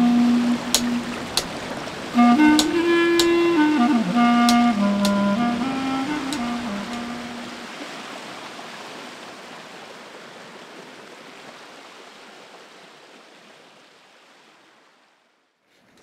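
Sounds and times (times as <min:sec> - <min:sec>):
music: 0:00.0 - 0:01.4, 0:02.2 - 0:07.6.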